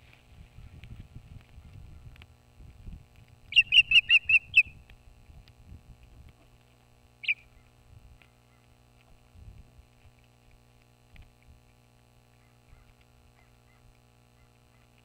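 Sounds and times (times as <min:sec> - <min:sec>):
bird whistled chirps: 0:03.5 - 0:04.8, 0:07.2 - 0:07.5.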